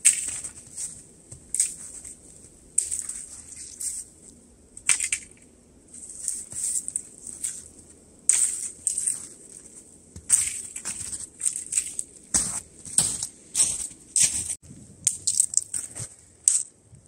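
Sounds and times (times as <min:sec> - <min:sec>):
twigs and needles rustling: 0:00.0 - 0:16.7.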